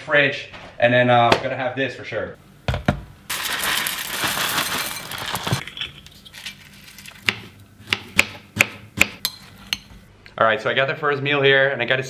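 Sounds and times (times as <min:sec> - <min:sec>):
cereal pouring into bowl: 0:03.3 - 0:05.6.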